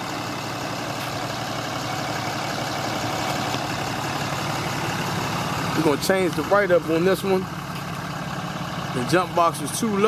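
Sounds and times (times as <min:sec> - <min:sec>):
diesel truck engine idling: 0:00.0 - 0:10.0.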